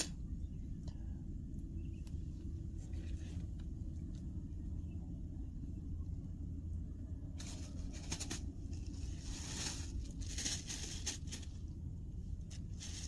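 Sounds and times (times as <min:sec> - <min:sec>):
steady low rumble: 0:00.0 - 0:13.0
crackling rustling noise: 0:07.4 - 0:11.8, 0:12.4 - 0:13.0.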